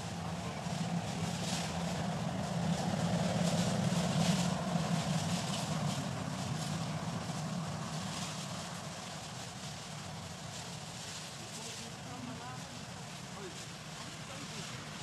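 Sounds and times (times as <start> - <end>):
engine humming: 0.0 - 15.0
faint hiss: 0.0 - 15.0.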